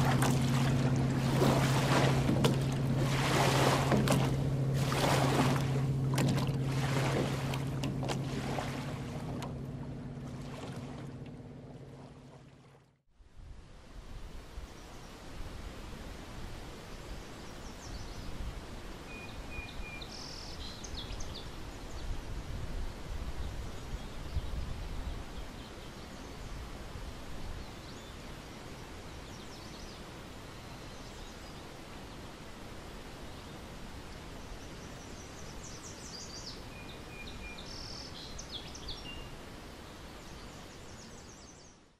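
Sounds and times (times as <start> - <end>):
low rumble: 0.0 - 13.0
steady background hiss: 13.4 - 41.8.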